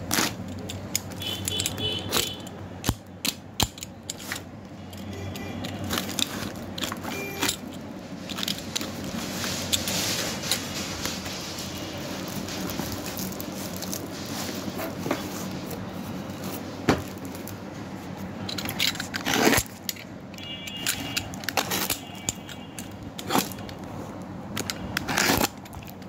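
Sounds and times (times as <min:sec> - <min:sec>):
plastic wrapping rustling: 0:05.6 - 0:26.0.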